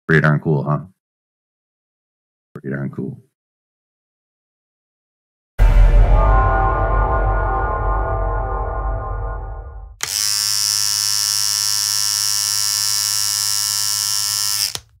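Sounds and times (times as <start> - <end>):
outro music: 5.6 - 10.0.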